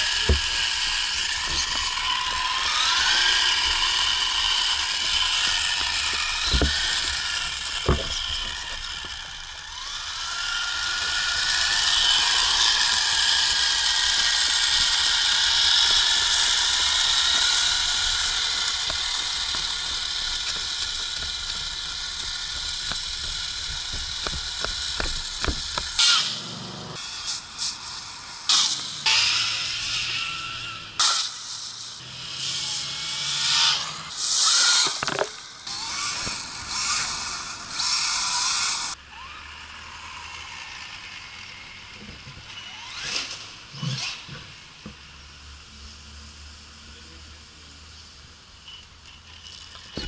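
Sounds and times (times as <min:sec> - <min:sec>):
electric motor and gears whining: 0:00.0 - 0:50.0
sharp knocks: 0:05.1 - 0:09.2, 0:18.8 - 0:26.1.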